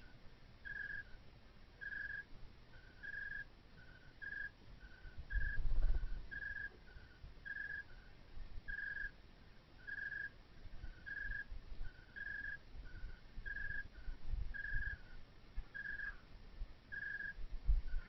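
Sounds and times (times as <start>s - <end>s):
low rumbles and thumps: 5.6s - 6.3s.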